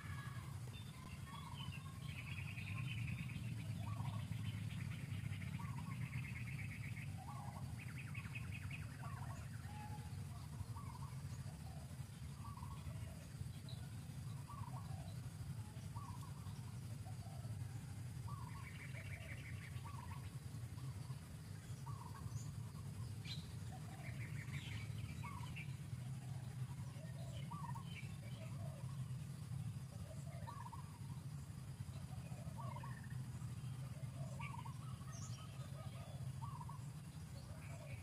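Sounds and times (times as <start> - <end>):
fast bird trill: 0.0 - 17.5, 18.1 - 26.2, 29.6 - 38.0
bird chirps: 0.0 - 38.0
steady low rumble: 0.0 - 38.0.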